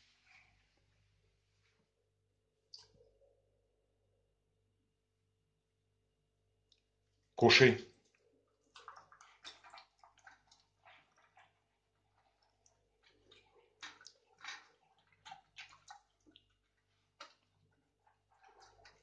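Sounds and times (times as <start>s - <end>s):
dog chewing wet food: 8.6s - 19.0s.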